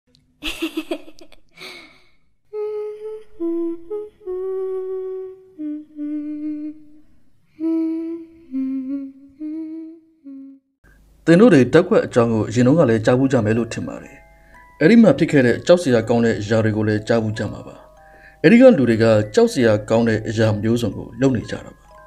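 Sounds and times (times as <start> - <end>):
person humming a slow melody: 2.5 - 10.8.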